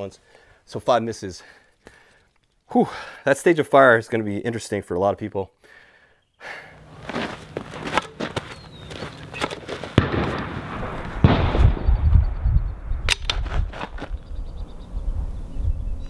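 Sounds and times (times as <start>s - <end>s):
rifle shots cracking: 9.6s - 11.9s.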